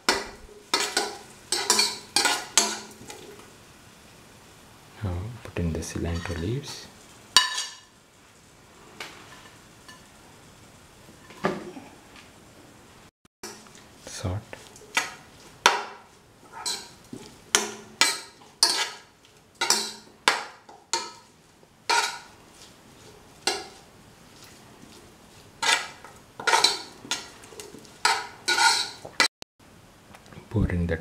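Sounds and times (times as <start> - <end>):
spoon scraping cooking pan: 0.0 - 3.5, 6.0 - 7.9, 9.0 - 10.1, 14.6 - 29.3.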